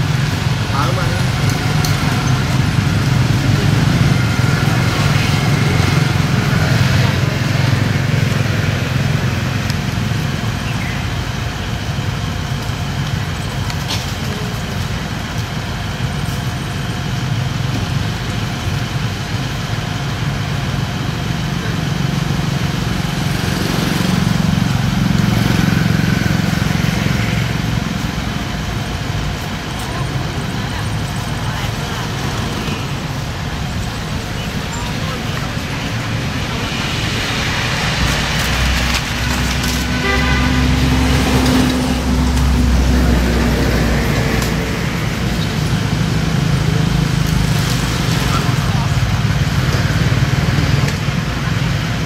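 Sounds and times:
vehicle engine running: 0.0s - 52.0s.

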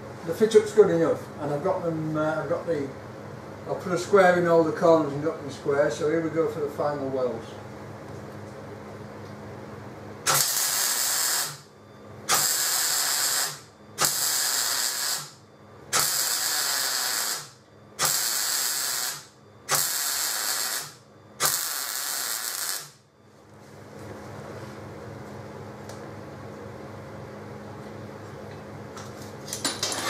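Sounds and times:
welder arc crackling: 10.2s - 11.7s, 12.3s - 23.0s.

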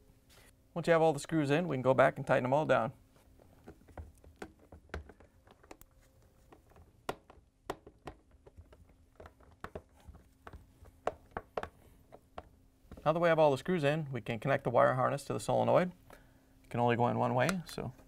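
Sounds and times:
faint steady hum: 0.0s - 18.0s.

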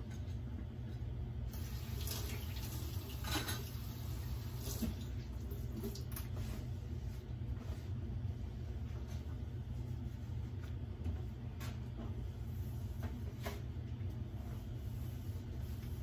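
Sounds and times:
faucet running into metal sink: 1.5s - 5.1s
steady low hum: 3.8s - 16.0s.

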